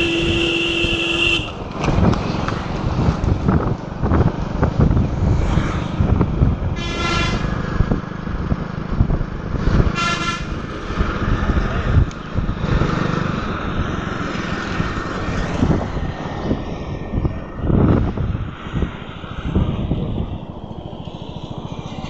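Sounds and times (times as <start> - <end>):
vehicle horn beeps: 0.0 - 1.6, 10.0 - 10.5
motorcycle engine and wind rumble: 0.0 - 22.0.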